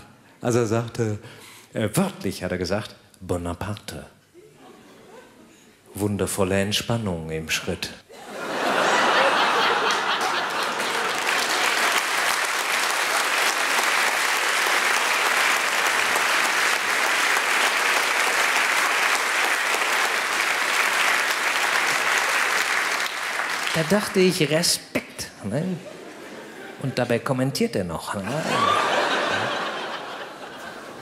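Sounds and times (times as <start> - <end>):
large audience applauding: 8.7 - 24.6, 28.6 - 30.3.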